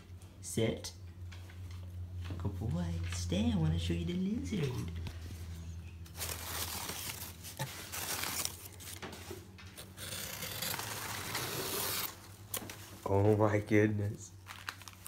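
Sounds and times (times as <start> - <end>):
low steady hum: 0.0 - 15.0
newspaper rustling and crinkling: 4.6 - 13.5, 14.3 - 15.0.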